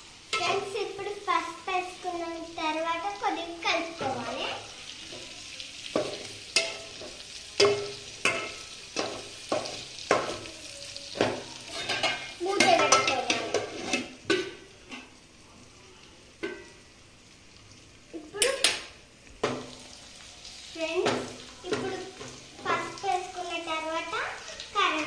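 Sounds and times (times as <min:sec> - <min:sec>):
spoon scraping and knocking in pot: 0:11.2 - 0:15.1.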